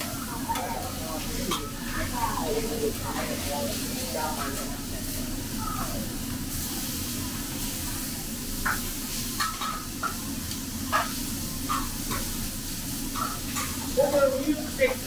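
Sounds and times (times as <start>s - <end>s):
meat sizzling on griddle: 0.0s - 15.0s
knife and spatula scraping hot plate: 8.6s - 10.2s, 10.9s - 12.3s, 13.1s - 13.8s.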